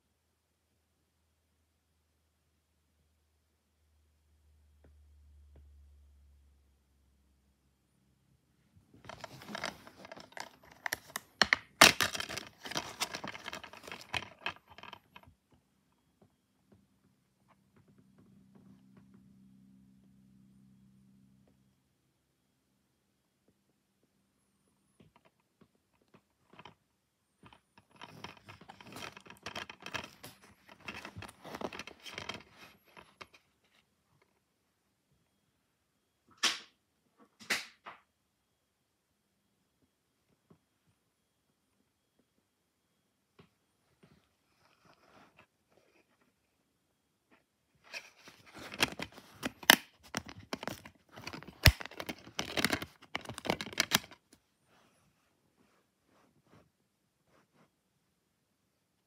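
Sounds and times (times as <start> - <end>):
plastic case clicking and creaking: 9.0 - 15.3, 27.5 - 33.4, 47.9 - 54.2.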